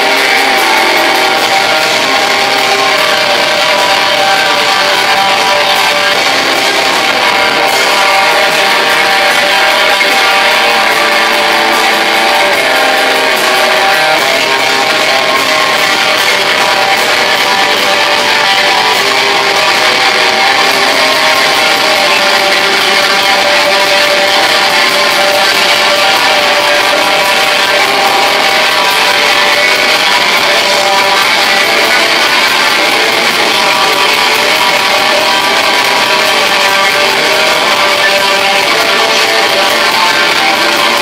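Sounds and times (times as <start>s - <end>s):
distorted electric guitars: 0.0s - 41.0s
drums and cymbals: 0.0s - 41.0s.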